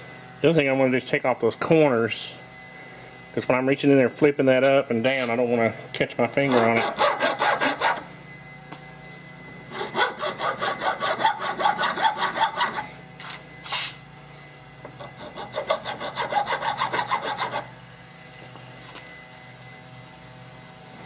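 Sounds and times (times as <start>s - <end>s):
hand file rasping on metal: 6.3s - 8.1s, 9.7s - 12.9s, 14.9s - 17.7s.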